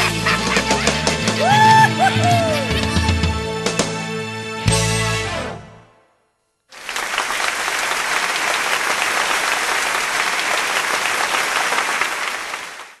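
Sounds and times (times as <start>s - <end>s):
crowd applauding: 0.0s - 3.0s, 6.7s - 13.0s.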